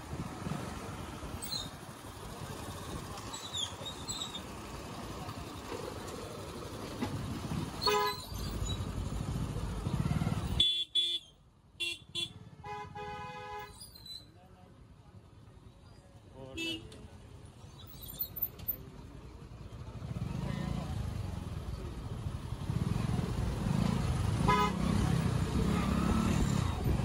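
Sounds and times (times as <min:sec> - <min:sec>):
motorbike rumble and wind: 0:00.0 - 0:11.1, 0:16.9 - 0:27.0
vehicle horn: 0:07.8 - 0:08.2, 0:10.6 - 0:13.7, 0:24.4 - 0:25.0.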